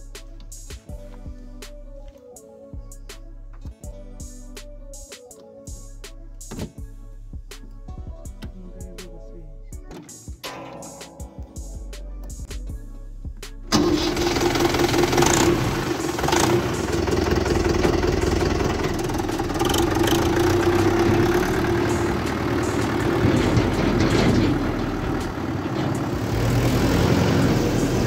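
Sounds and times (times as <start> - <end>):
tractor diesel engine idling: 13.7 - 28.0.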